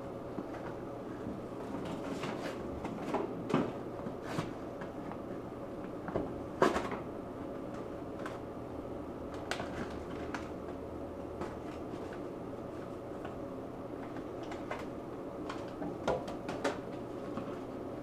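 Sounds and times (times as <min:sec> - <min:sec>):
faint steady hum: 0:00.0 - 0:18.0
paper envelopes rustling: 0:09.4 - 0:10.7.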